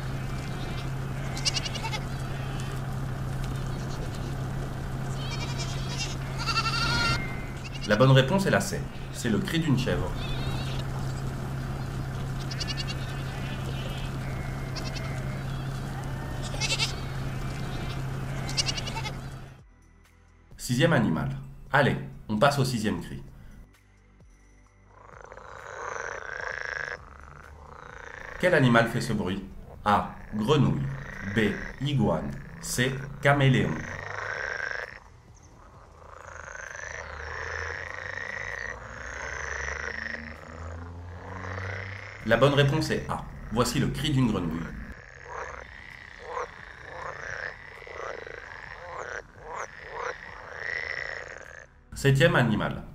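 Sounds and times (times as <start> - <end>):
frogs calling in chorus: 0.0 - 19.6, 24.9 - 51.8
goats bleating: 0.0 - 19.6, 25.1 - 51.7
steady low hum: 0.0 - 19.6.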